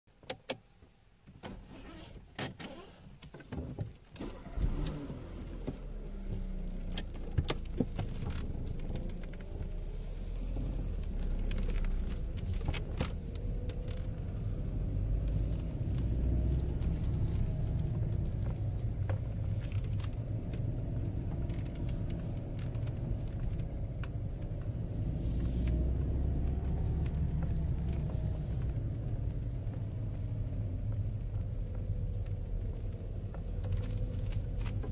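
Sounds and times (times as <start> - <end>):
car engine and road rumble: 0.1 - 34.9
sharp clicks and knocks: 5.6 - 9.8.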